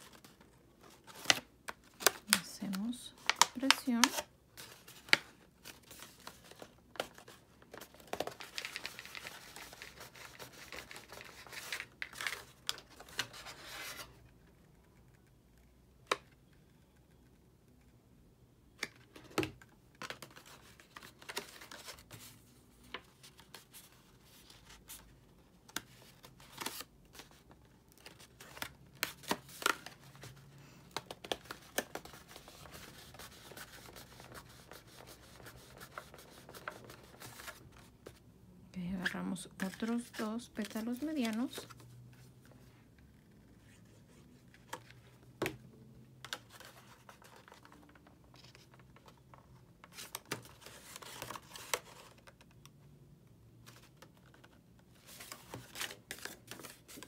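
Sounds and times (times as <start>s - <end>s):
stiff paper rustling and crinkling: 0.0s - 14.1s.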